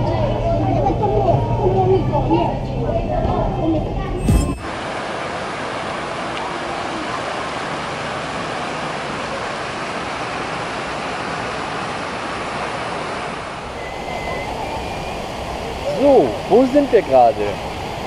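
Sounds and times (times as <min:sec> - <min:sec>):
outdoor background noise: 0:00.0 - 0:18.0
fountain jets splashing into water: 0:05.3 - 0:13.4, 0:15.8 - 0:17.6.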